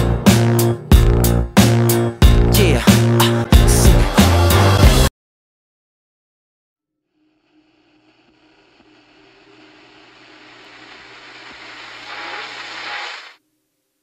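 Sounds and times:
low hum: 7.2s - 12.7s.

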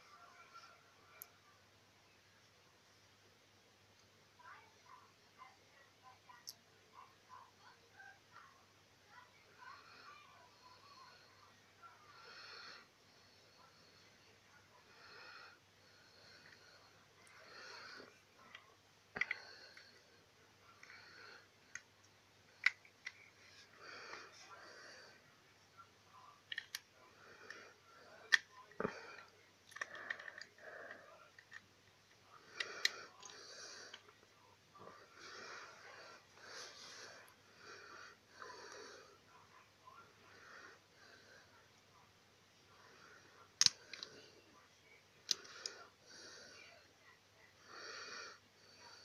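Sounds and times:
soft breathy hiss: 0.0s - 49.0s
plastic cube pieces clicking: 26.5s - 26.8s, 29.7s - 30.6s.

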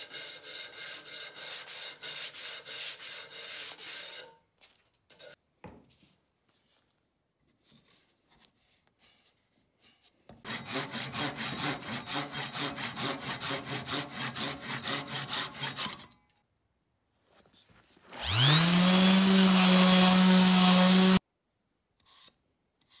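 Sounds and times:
hand saw cutting wood: 0.0s - 4.4s, 10.4s - 16.2s, 18.2s - 21.2s
orbital sander whining: 18.2s - 21.2s.

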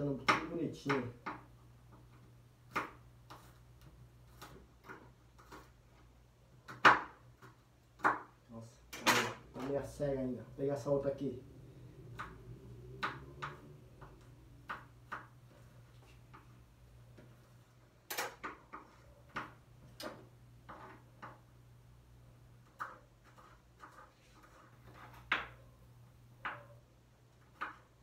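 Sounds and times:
low steady hum: 7.7s - 18.1s.

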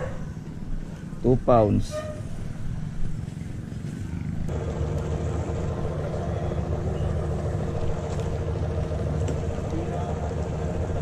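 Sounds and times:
engine running at low revs: 2.4s - 11.0s.

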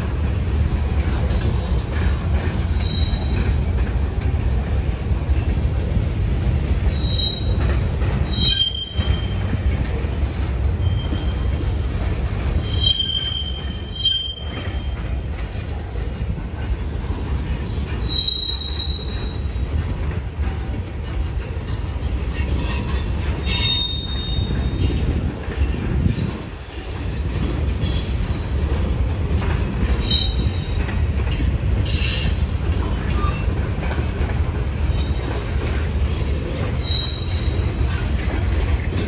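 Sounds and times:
train wheels rumbling on rail: 0.0s - 39.0s
high-pitched wheel squeals: 6.8s - 7.6s, 8.2s - 9.4s, 12.6s - 15.0s, 17.8s - 19.6s, 23.4s - 25.0s, 36.8s - 37.7s.

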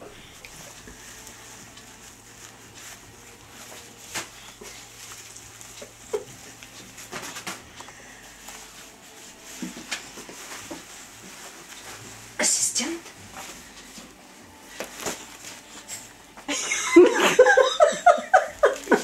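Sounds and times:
diapers rustling and crinkling: 0.0s - 19.0s
sharp plastic crackles: 0.3s - 8.8s, 14.0s - 15.8s.

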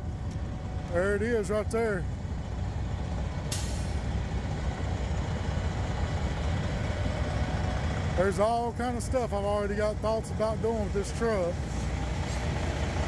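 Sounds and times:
diesel truck idling: 0.0s - 13.0s
air hiss from truck: 3.5s - 4.1s.

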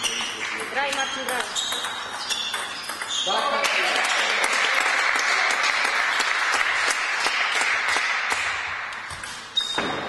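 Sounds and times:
table tennis ball ping: 0.0s - 3.3s, 8.3s - 10.0s
spectators clapping: 3.5s - 9.0s.

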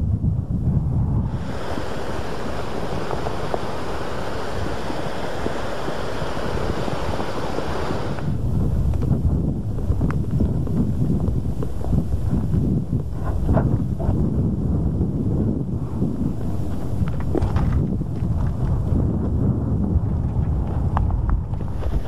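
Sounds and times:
wind buffeting microphone: 0.0s - 22.0s
bright hiss: 1.2s - 8.6s.

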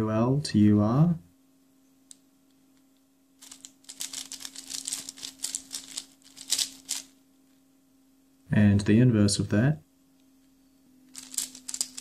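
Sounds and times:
faint steady hum: 0.0s - 12.0s
puzzle cube clacking turns: 3.4s - 7.1s, 11.1s - 12.0s.

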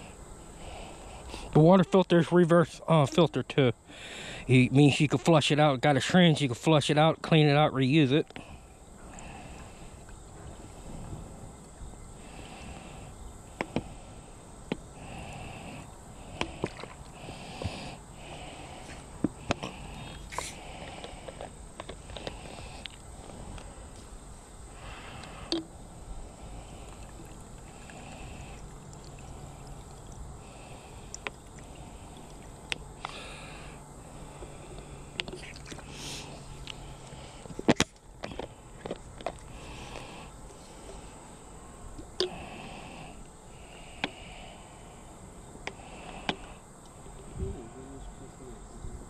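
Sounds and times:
water running in spurts: 26.4s - 33.4s.

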